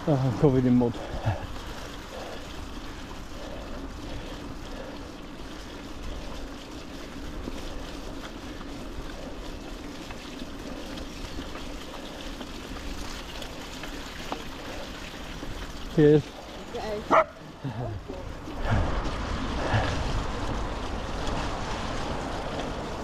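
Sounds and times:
mountain bike rolling on mud: 0:00.0 - 0:23.0
wind noise: 0:16.9 - 0:23.0.

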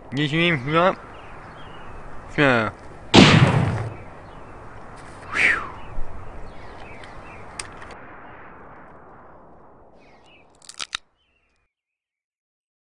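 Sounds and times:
short falling cry or whistle: 0:05.3 - 0:05.9
light clicks: 0:06.8 - 0:08.0.

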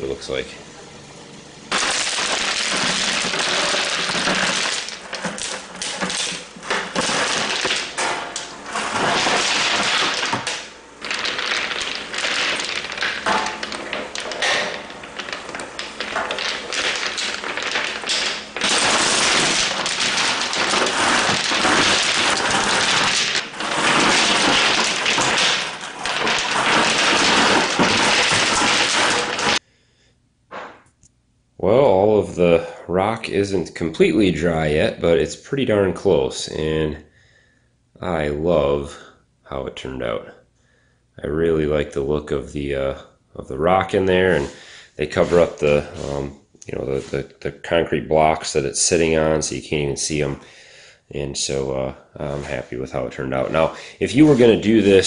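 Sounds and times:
stones rattling onto rock: 0:01.7 - 0:29.6.

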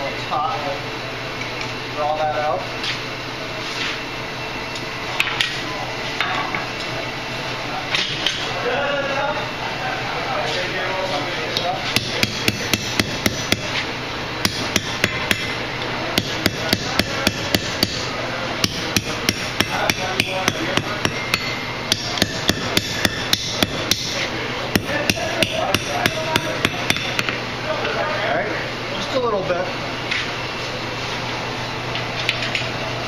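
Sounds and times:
hammer striking steel on anvil: 0:12.0 - 0:13.8, 0:14.4 - 0:15.6, 0:16.2 - 0:27.4.

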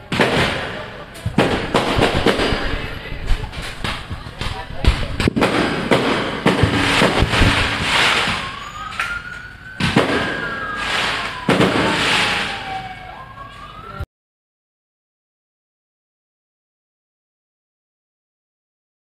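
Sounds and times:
rockets whooshing: 0:00.0 - 0:12.9
fireworks banging: 0:00.0 - 0:13.7
siren wailing: 0:06.5 - 0:14.1.

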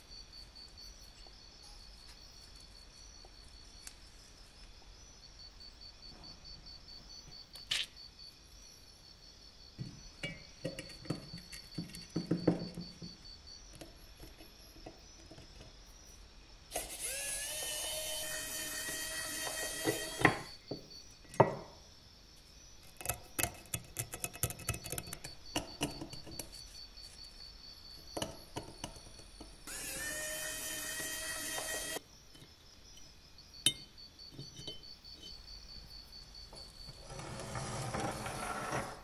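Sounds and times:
small drill motor whining: 0:16.7 - 0:20.6, 0:29.6 - 0:32.0.

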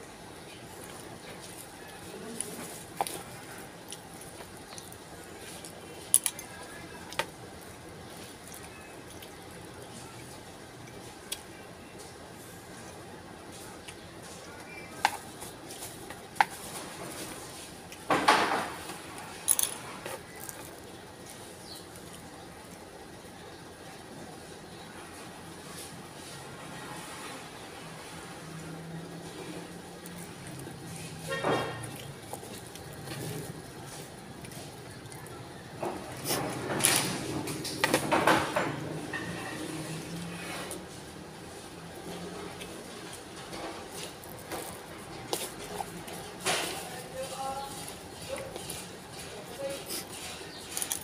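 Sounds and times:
chewing: 0:00.5 - 0:12.1, 0:18.8 - 0:23.0, 0:29.1 - 0:38.1, 0:41.6 - 0:51.0.

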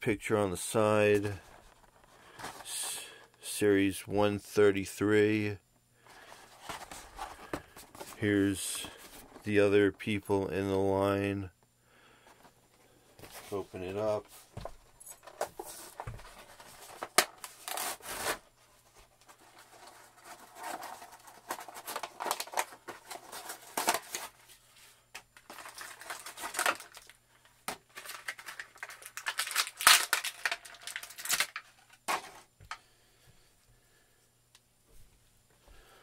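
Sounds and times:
cardboard tearing: 0:16.9 - 0:18.4, 0:28.0 - 0:32.3
plastic packaging crinkling: 0:19.2 - 0:24.4, 0:25.4 - 0:32.4.

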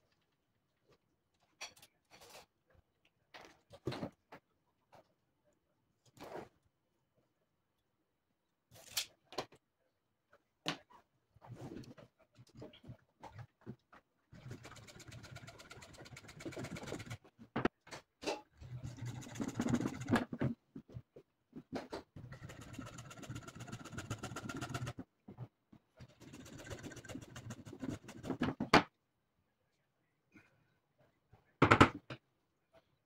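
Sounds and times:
hacksaw cutting plastic pipe: 0:22.2 - 0:25.0.

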